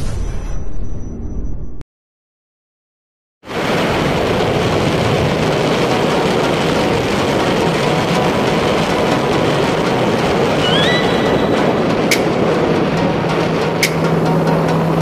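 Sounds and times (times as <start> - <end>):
loud rushing rumble: 3.5 - 15.0
rising squeak: 10.6 - 11.8.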